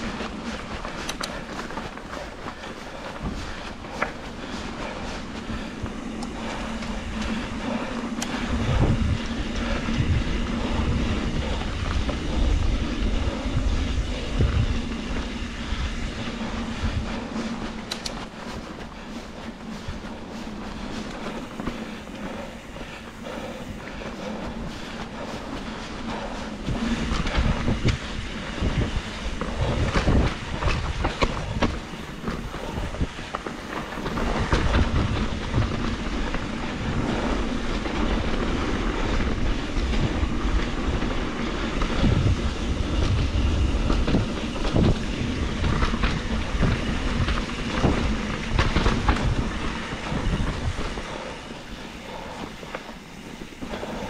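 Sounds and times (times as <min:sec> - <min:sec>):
steady rushing noise: 0:00.0 - 0:54.0.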